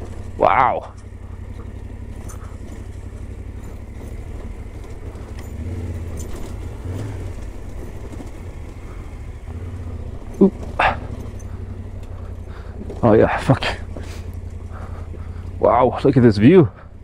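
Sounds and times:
motorcycle engine low rumble: 0.0s - 17.0s
stones crackling under tyres: 0.0s - 17.0s.

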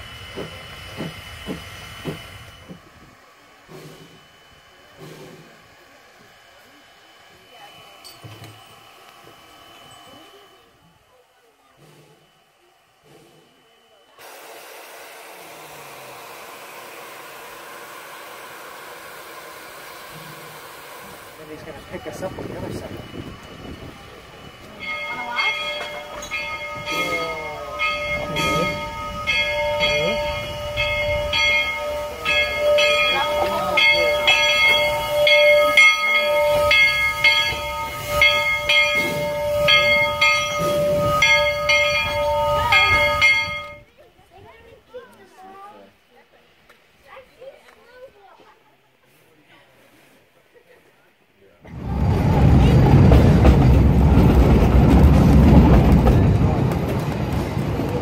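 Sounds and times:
steam hissing from locomotive: 0.0s - 43.9s.

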